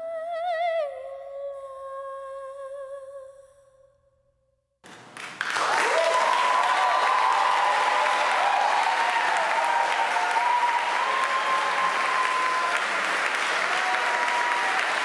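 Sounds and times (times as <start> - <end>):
audience applauding: 4.9 - 15.0.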